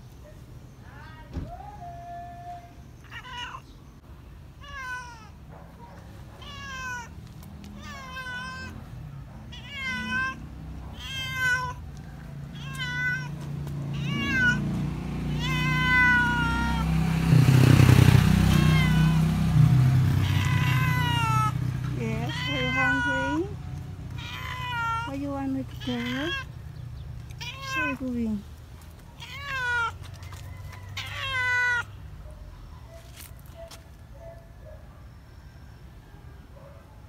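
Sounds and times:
cat meowing: 0:03.0 - 0:03.7, 0:04.6 - 0:05.4, 0:06.4 - 0:08.8, 0:09.5 - 0:11.9, 0:12.5 - 0:16.9, 0:18.4 - 0:19.5, 0:20.2 - 0:21.6, 0:22.2 - 0:26.6, 0:27.3 - 0:28.3, 0:29.2 - 0:30.2, 0:31.0 - 0:32.0.

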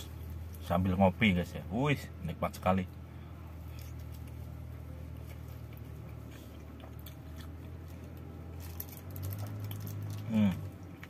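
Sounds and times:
steady low hum: 0:00.0 - 0:11.0
man chewing: 0:03.6 - 0:11.0.

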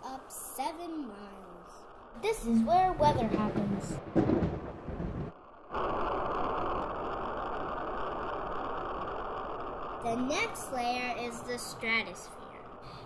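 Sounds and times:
thunder sound effect: 0:01.9 - 0:13.0
cartoon rocket engine rushing: 0:05.6 - 0:12.9.

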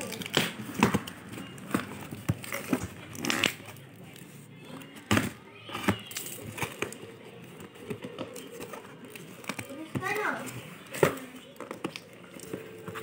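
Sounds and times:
cardboard and plastic crackling: 0:00.0 - 0:13.0.

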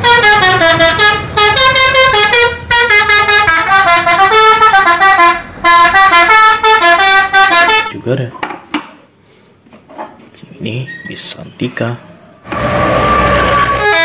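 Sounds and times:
musical bus horn: 0:00.0 - 0:08.0, 0:12.5 - 0:14.0.

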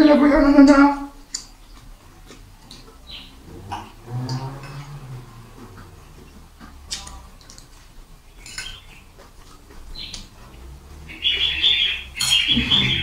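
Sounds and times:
forks clinking on plates: 0:08.4 - 0:09.6, 0:12.1 - 0:12.6.

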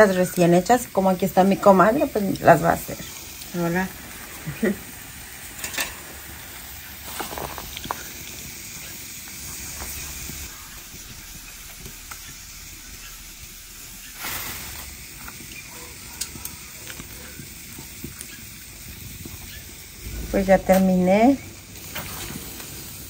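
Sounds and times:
sizzling hiss from hot griddle: 0:00.0 - 0:23.0
plastic bag crackling: 0:06.1 - 0:08.6.

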